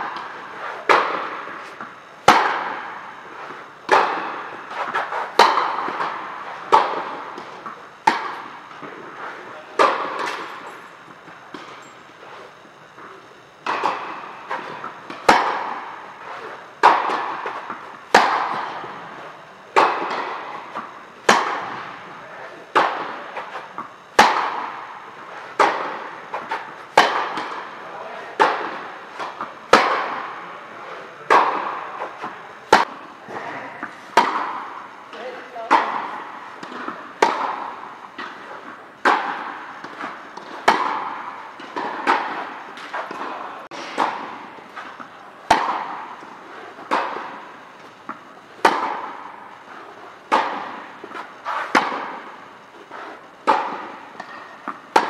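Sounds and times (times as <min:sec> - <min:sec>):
tennis racket strokes: 0:00.0 - 0:55.0
tennis ball bounces: 0:00.1 - 0:22.0, 0:33.7 - 0:49.4, 0:53.0 - 0:55.0.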